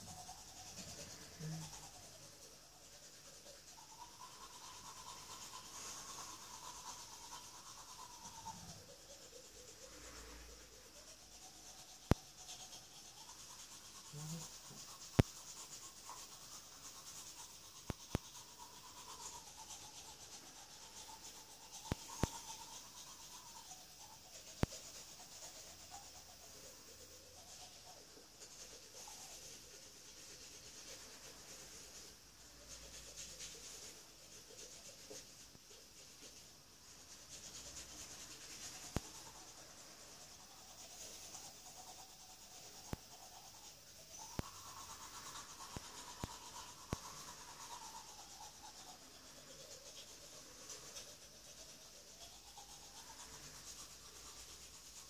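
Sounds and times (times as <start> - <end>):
toothbrush scrubbing teeth: 0.0 - 55.0.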